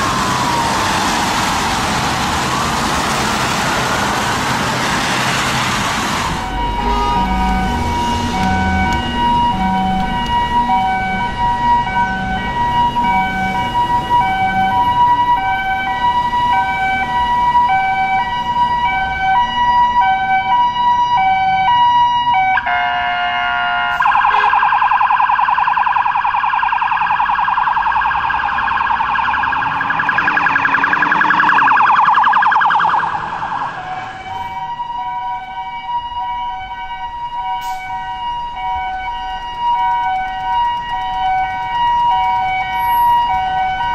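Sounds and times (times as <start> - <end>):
truck engine: 0.0 - 19.9, 27.8 - 36.3, 37.1 - 43.9
fire truck siren: 0.0 - 43.9.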